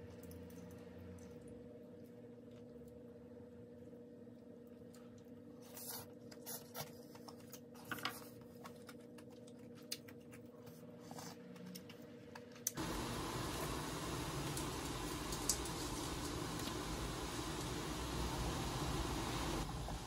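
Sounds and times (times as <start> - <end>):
low steady hum: 0.0 - 20.0
steady hiss: 12.8 - 20.0.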